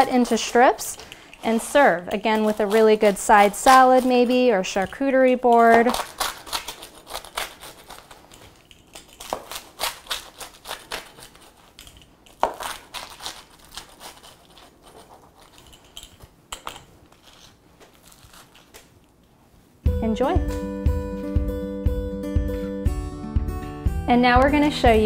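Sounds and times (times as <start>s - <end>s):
pizza cutter crunching crust: 0.0s - 15.7s, 17.1s - 19.0s.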